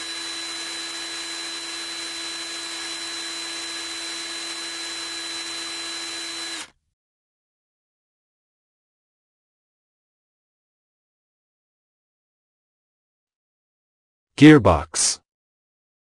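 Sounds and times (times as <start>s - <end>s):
electric drill motor whirring: 0.0s - 6.8s.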